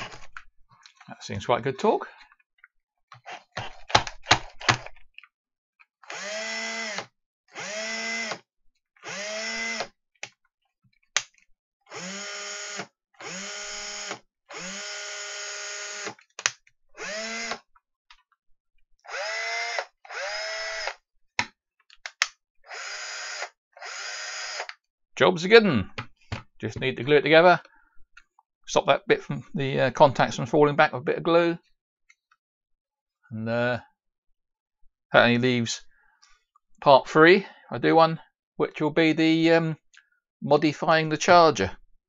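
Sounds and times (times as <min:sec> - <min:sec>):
cordless drill motor spinning: 0:06.0 - 0:08.4, 0:09.0 - 0:09.9, 0:11.9 - 0:16.2, 0:17.0 - 0:17.7, 0:19.0 - 0:21.0, 0:22.7 - 0:24.8.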